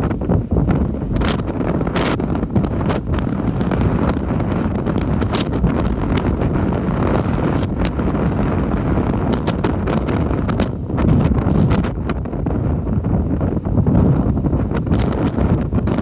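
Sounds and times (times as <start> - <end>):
surf breaking over rocks: 0.0 - 12.8
wind buffeting microphone: 0.0 - 16.0.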